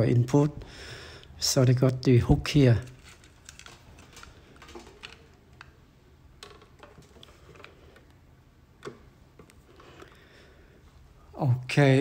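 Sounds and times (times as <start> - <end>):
cables and plugs clicking on stone: 2.8 - 5.8.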